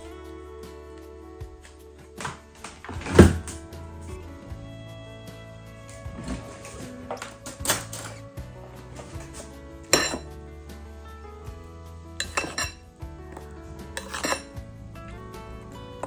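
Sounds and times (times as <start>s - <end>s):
background music: 0.0s - 16.0s
spoon clinking against glass bowl: 10.0s - 10.2s, 12.2s - 12.8s, 14.0s - 14.5s.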